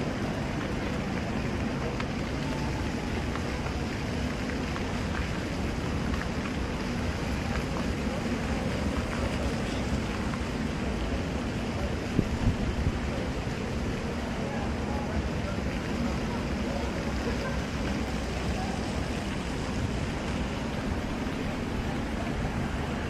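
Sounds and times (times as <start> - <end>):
faint voices: 0.0 - 23.0
wind rumble on microphone: 10.2 - 14.4.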